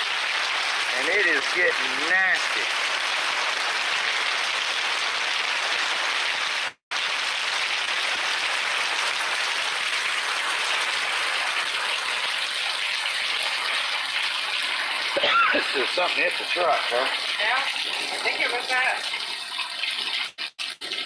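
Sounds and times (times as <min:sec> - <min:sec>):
heavy rain pouring: 0:00.0 - 0:11.6.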